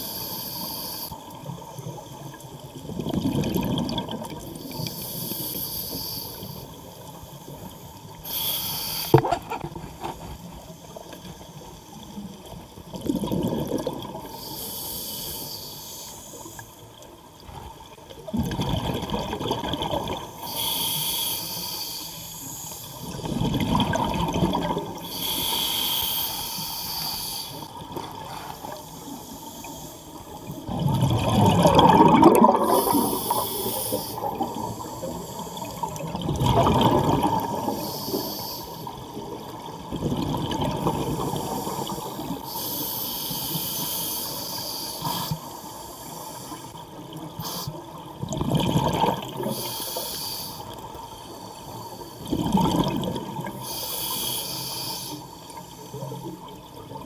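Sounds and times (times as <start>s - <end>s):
scuba regulator inhalation hiss: 0.0s - 1.3s, 4.6s - 11.8s, 14.2s - 16.9s, 20.4s - 23.3s, 25.0s - 30.6s, 32.4s - 36.1s, 37.4s - 39.2s, 41.0s - 48.0s, 49.4s - 52.4s, 53.4s - 56.4s
exhaled bubbles rushing: 2.8s - 4.6s, 12.9s - 14.3s, 18.3s - 20.3s, 23.1s - 25.0s, 30.5s - 34.8s, 35.8s - 37.8s, 39.2s - 42.4s, 48.1s - 49.5s, 52.2s - 53.5s.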